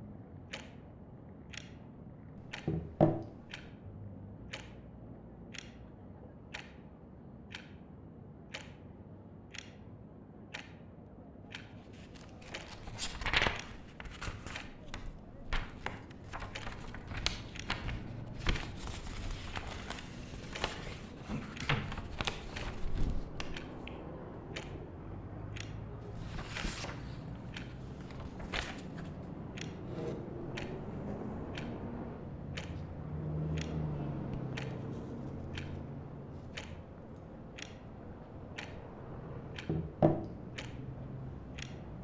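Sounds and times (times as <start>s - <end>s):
clock ticking: 0.4s - 42.0s
low traffic rumble: 11.1s - 42.0s.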